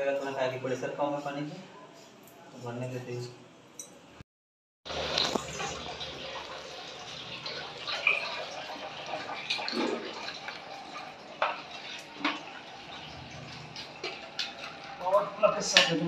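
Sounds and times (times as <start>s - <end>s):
water running and splashing: 4.9s - 16.0s.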